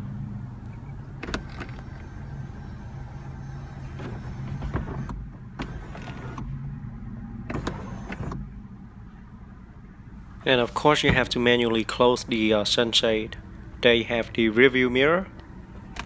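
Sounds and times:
sunroof motor humming: 0:00.0 - 0:10.5.

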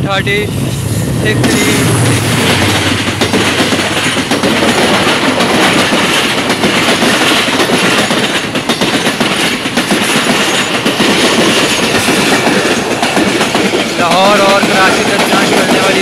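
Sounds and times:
train passing at speed: 0:00.0 - 0:16.0
wheel clatter on rails: 0:01.3 - 0:16.0.

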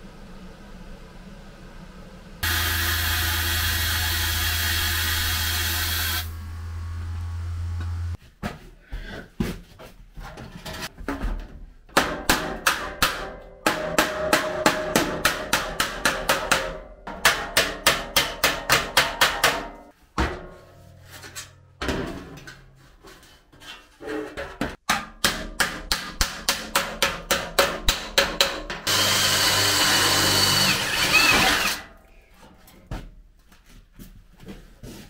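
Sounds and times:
hammer on sheet metal: 0:12.0 - 0:20.8, 0:24.8 - 0:29.0.

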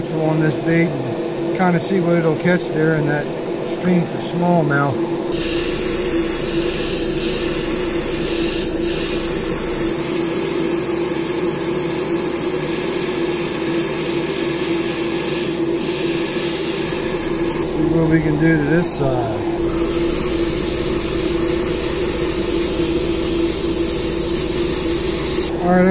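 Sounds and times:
low background hum: 0:00.0 - 0:25.9
airbrush spraying hiss: 0:05.3 - 0:11.4, 0:12.2 - 0:17.7, 0:19.6 - 0:25.5.

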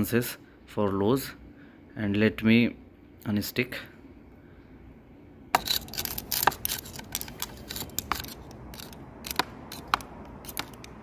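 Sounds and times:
screwdriver metallic clicks: 0:05.6 - 0:11.0.

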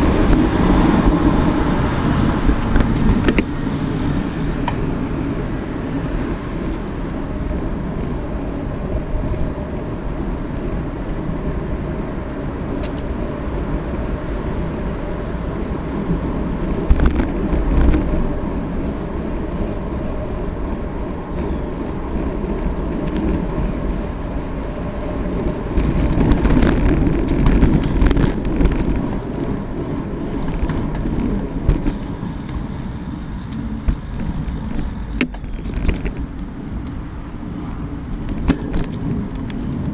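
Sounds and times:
bicycle tyres rolling on pavement: 0:00.0 - 0:39.9
bicycle rattling knocks from bumps: 0:16.6 - 0:18.3, 0:25.6 - 0:36.4, 0:38.2 - 0:39.9.

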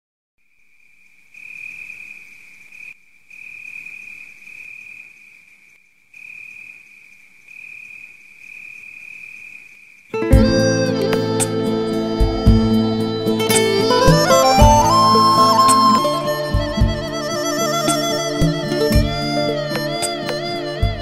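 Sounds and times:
faint outdoor hiss: 0:00.4 - 0:21.0
music: 0:10.2 - 0:21.0.

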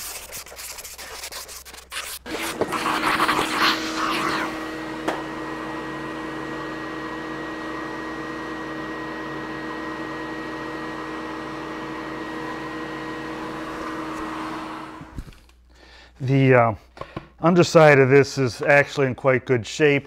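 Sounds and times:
vacuum hose sucking dust: 0:01.8 - 0:15.2
shop vacuum humming: 0:02.2 - 0:15.3.

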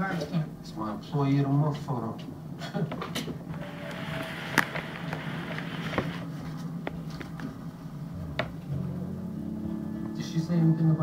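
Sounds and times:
low buzzing hum: 0:03.4 - 0:11.0.

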